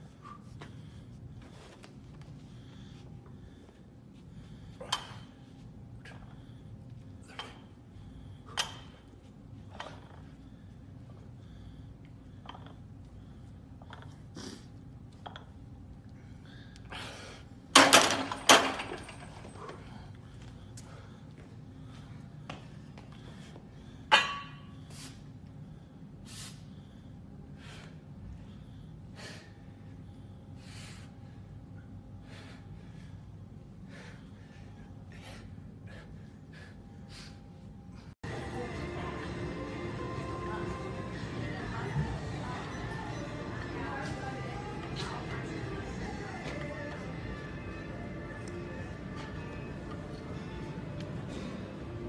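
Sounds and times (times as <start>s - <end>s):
man breathing hard: 0.0s - 9.0s, 16.0s - 17.6s, 24.8s - 38.2s
low room hum: 0.0s - 52.0s
bar and chains clinking: 17.8s - 19.6s.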